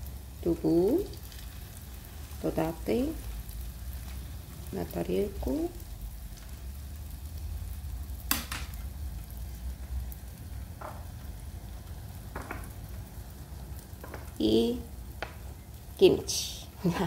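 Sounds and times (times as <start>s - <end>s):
tofu sizzling in hot oil: 0.0s - 17.0s
sharp clicks at pan: 8.3s - 8.8s.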